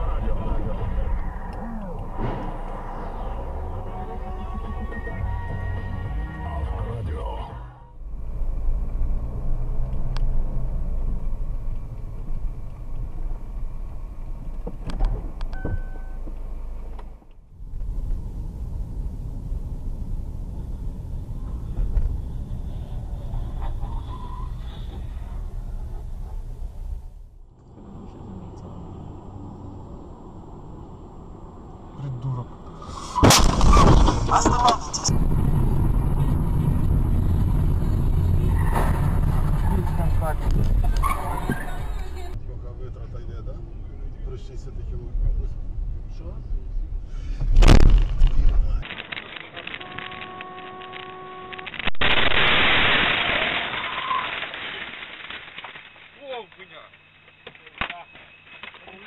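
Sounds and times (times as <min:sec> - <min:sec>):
engine and tyre rumble: 0:00.0 - 0:56.2
short beep: 0:15.5 - 0:16.3
jumbled burst of noise: 0:48.8 - 0:58.6.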